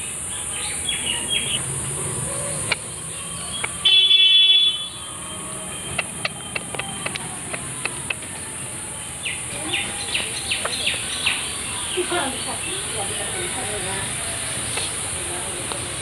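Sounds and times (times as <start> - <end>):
sharp clicks: 3.6 - 3.8, 5.9 - 8.4.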